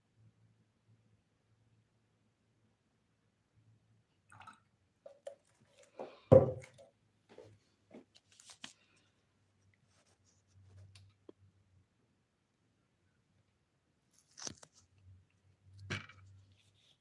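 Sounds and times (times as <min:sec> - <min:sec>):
plastic jug set down knock: 0:06.3 - 0:06.8.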